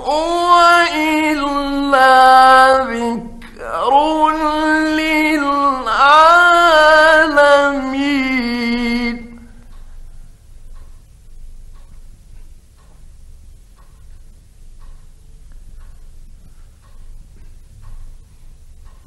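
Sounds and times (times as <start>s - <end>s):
man chanting melodically: 0.0s - 9.6s.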